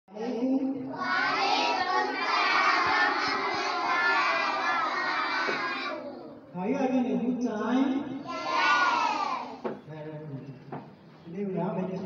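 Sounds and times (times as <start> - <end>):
children singing in chorus: 1.0 - 6.1, 8.3 - 9.6.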